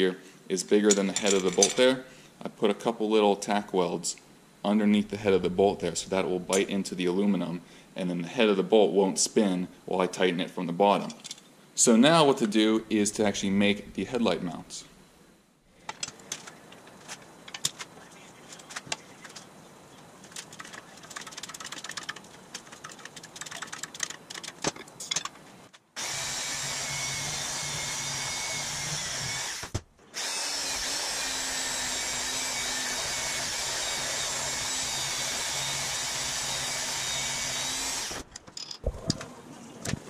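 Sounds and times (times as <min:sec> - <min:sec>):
band saw cutting metal: 0:26.0 - 0:38.3.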